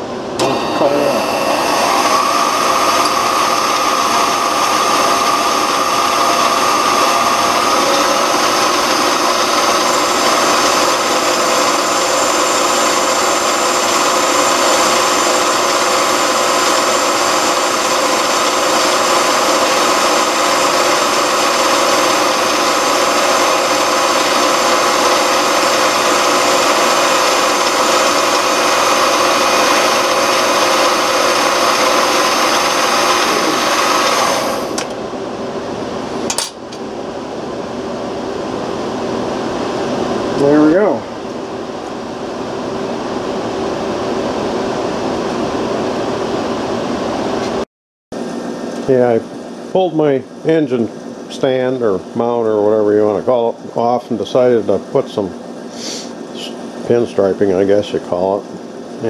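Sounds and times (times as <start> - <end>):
metal lathe humming: 0.0 - 47.6
cutoff tool cutting workpiece: 0.4 - 35.0.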